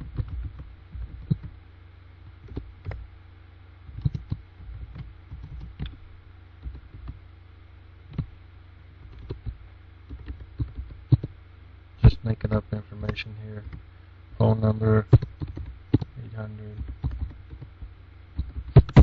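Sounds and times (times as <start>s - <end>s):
low steady hum: 0.0s - 19.0s
keyboard typing: 0.1s - 1.5s, 3.9s - 6.0s, 6.6s - 7.2s, 9.1s - 11.3s, 15.1s - 19.0s.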